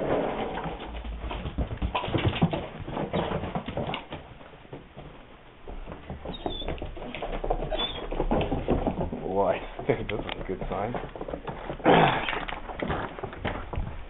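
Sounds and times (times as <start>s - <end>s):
dogs' paws tapping and scuffling: 0.0s - 14.0s
high squeaks: 6.3s - 8.1s.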